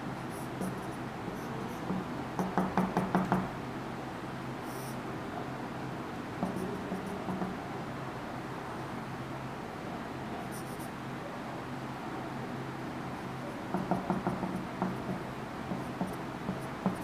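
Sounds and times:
steady low hum: 0.0s - 17.0s
marker pen on whiteboard: 0.1s - 3.6s, 6.4s - 7.6s, 10.3s - 11.0s, 13.2s - 17.0s.

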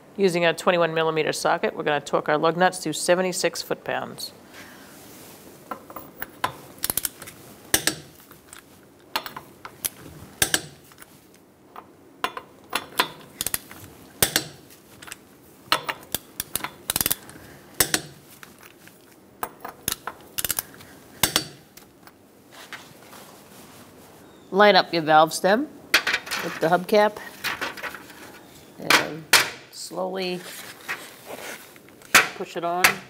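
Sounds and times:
torque wrench metallic clicks: 15.7s - 18.2s.

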